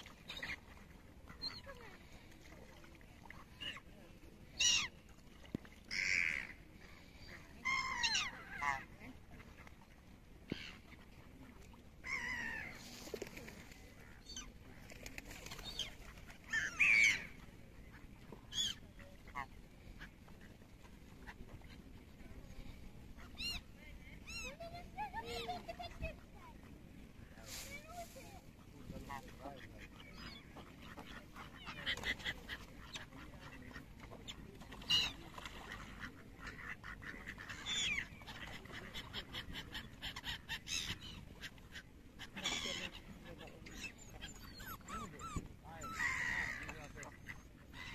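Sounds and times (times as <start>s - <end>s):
ducks quacking: 28.7s - 43.6s.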